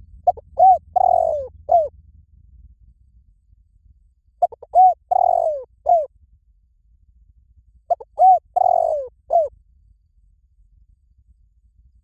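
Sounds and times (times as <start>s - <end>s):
dove cooing: 0.2s - 1.9s, 4.4s - 6.1s, 7.9s - 9.5s.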